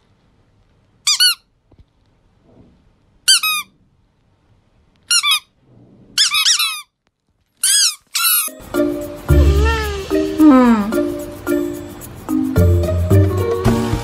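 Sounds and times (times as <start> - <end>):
squeaky toy squeaking: 1.0 - 1.5, 3.3 - 3.7, 5.1 - 5.6, 6.2 - 7.0, 7.6 - 8.6, 9.3 - 10.9.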